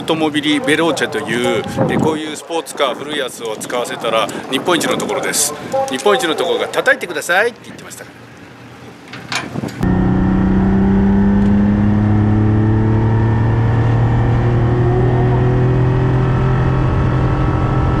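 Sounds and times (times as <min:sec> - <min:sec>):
car engine revving from cabin: 0:09.8 - 0:18.0.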